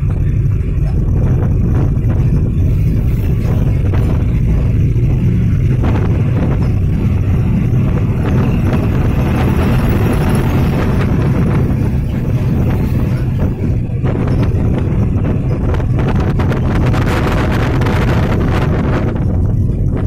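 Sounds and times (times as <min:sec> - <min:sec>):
bus engine and tyre rumble: 0:00.0 - 0:20.0.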